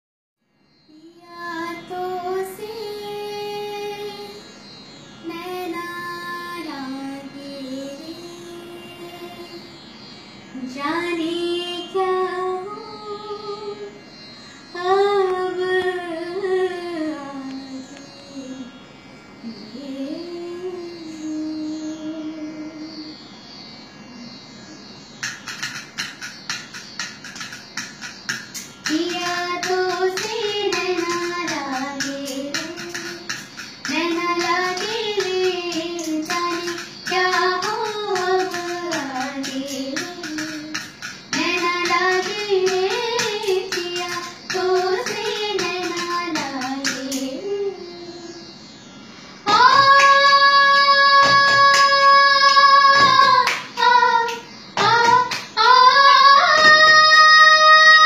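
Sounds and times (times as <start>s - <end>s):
cup rhythm taps and claps: 25.2s - 47.3s, 51.2s - 55.6s, 56.5s - 57.1s
person singing: 28.9s - 48.4s, 49.5s - 58.0s.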